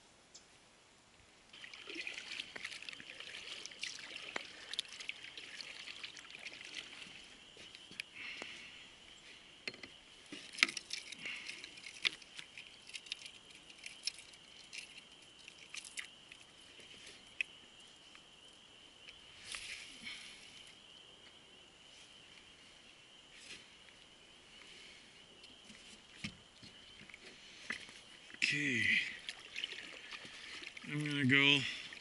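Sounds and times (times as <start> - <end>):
paddle splashing water: 1.5 - 7.9, 29.1 - 32.0.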